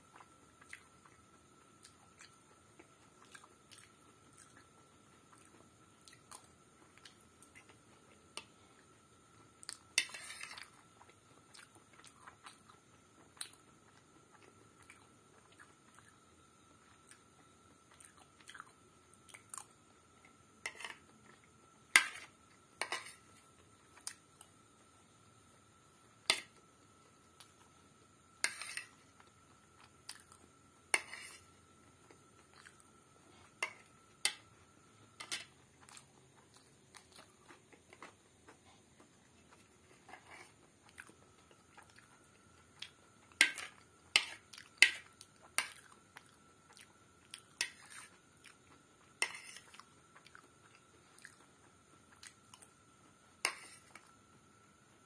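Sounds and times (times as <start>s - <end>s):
metal spoon scraping a plate: 10.0s - 10.7s, 20.6s - 21.0s, 22.0s - 23.3s, 28.4s - 29.0s, 30.9s - 31.5s, 49.2s - 49.7s
chewing and mouth sounds: 44.5s - 48.8s, 49.6s - 52.7s.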